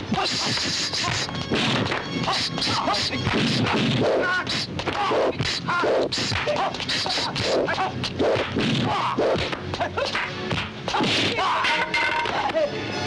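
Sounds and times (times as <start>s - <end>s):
punch and strike whacks: 0.5s - 4.2s, 6.2s - 6.7s, 8.2s - 11.4s.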